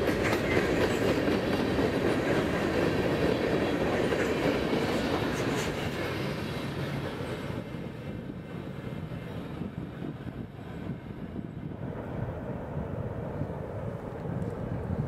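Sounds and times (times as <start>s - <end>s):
train wheel clatter: 0.0s - 8.2s
freight train rumbling: 0.0s - 15.0s.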